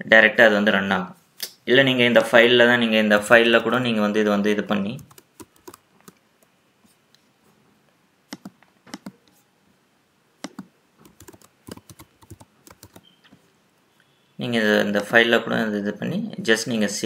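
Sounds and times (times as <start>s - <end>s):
computer keyboard typing: 4.9s - 6.2s, 8.4s - 9.2s, 10.4s - 13.2s.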